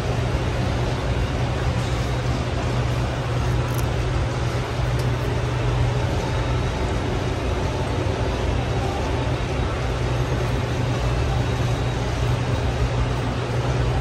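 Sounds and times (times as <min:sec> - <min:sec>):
constant low hum: 0:00.0 - 0:14.0
indistinct background noise: 0:00.0 - 0:14.0.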